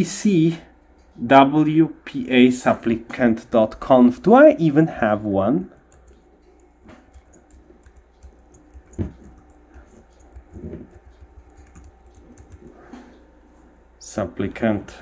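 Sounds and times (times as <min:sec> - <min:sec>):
keyboard keys clicking: 0:05.8 - 0:12.8.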